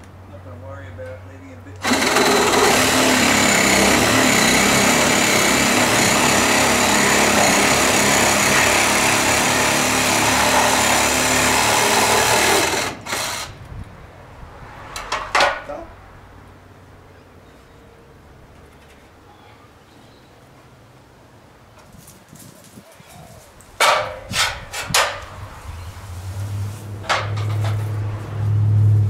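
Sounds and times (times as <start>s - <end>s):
cordless drill driving screw: 1.8s - 11.1s.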